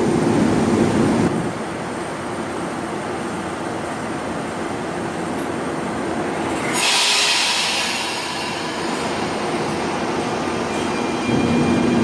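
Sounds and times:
train rolling past: 0.0 - 12.0
train brakes hissing: 6.2 - 12.0
high wheel squeal: 6.5 - 12.0.

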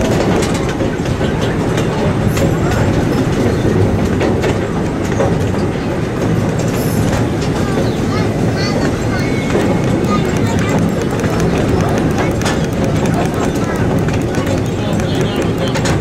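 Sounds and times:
track clicks: 0.0 - 16.0
wheels rumbling on rails: 0.0 - 16.0.

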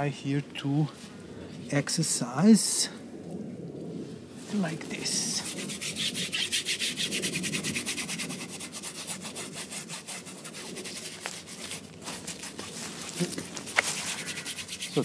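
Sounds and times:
paintbrush scrubbing on canvas: 4.5 - 15.0.

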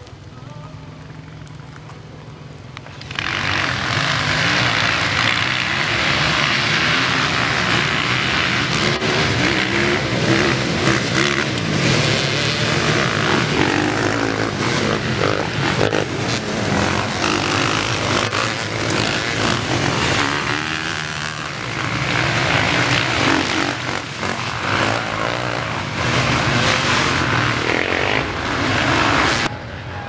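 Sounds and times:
dirt bike engines revving: 0.0 - 29.6.

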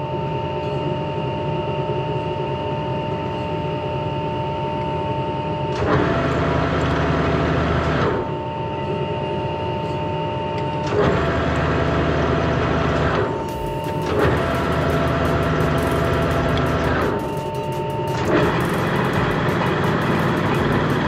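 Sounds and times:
machine tool whining: 5.0 - 21.0.

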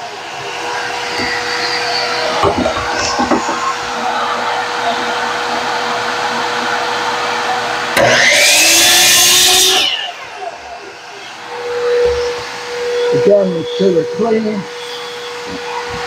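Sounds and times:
shop vacuum running: 0.0 - 16.0
chop saw cutting plank: 8.0 - 10.1.

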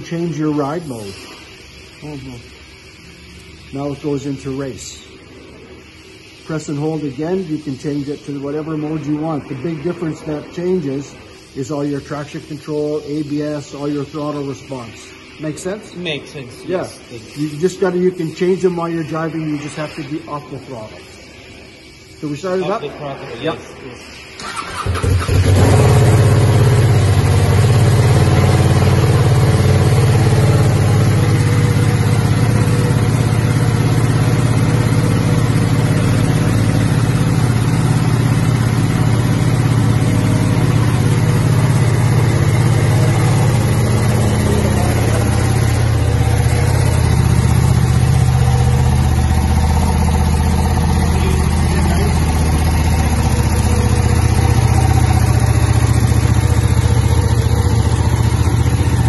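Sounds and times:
motorcycle engine idling: 24.4 - 59.0.

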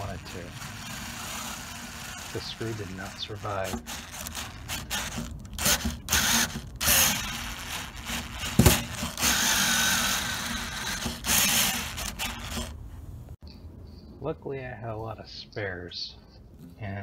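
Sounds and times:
drill-driver running: 0.0 - 12.8.

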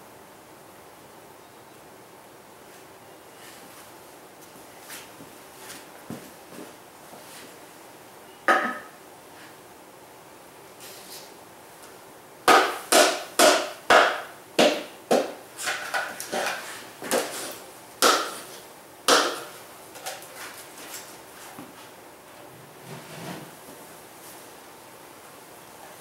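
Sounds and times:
sharp wooden knocks: 12.5 - 16.1, 18.0 - 18.4, 19.1 - 19.5.

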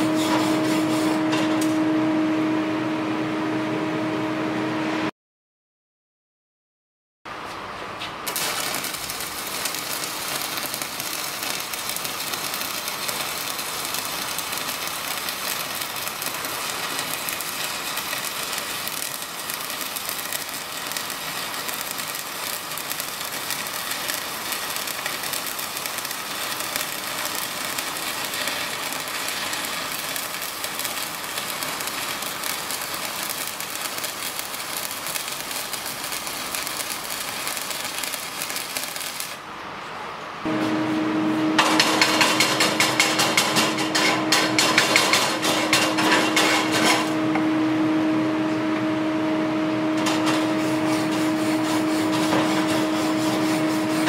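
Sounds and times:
welding arc crackling: 8.2 - 39.4, 41.6 - 47.4, 49.9 - 54.0.

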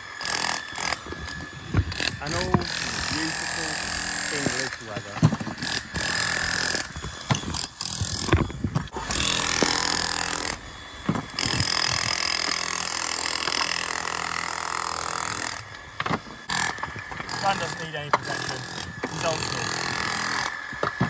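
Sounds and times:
electric hammer chiselling render: 0.0 - 21.0.

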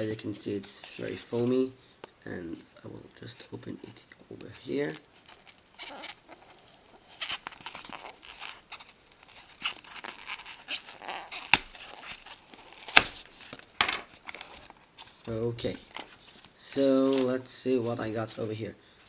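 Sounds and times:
squeaky rubbing of foam: 5.2 - 13.2.

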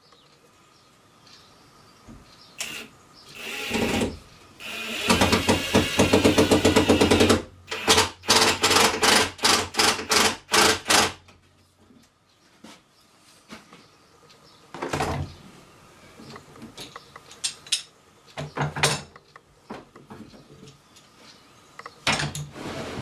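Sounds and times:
drill driving screws into wood: 2.6 - 11.2.

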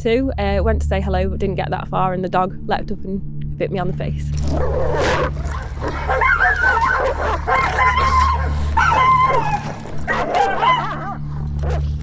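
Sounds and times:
low steady hum: 0.0 - 12.0
dog barking and yelping: 4.5 - 12.0.

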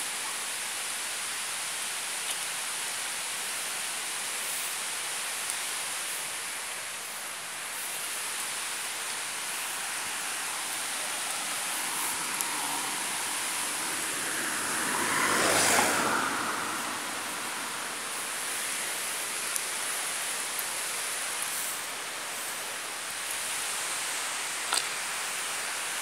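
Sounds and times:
steady rushing hiss: 0.0 - 26.0
car passing close by: 9.2 - 19.8.

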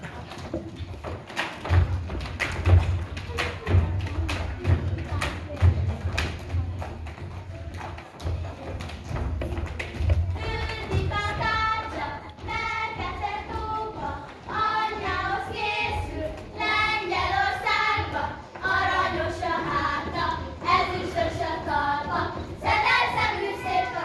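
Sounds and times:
girls singing in unison: 10.0 - 24.0.

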